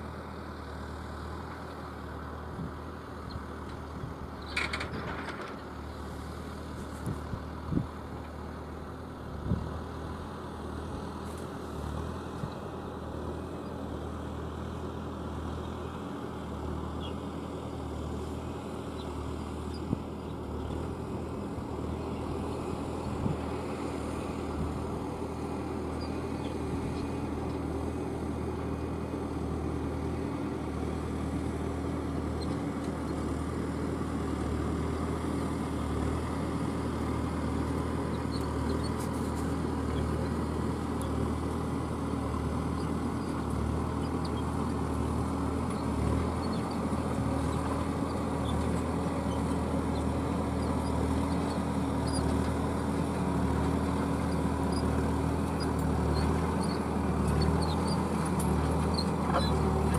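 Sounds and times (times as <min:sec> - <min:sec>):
tractor diesel engine under load: 0:00.0 - 0:59.9.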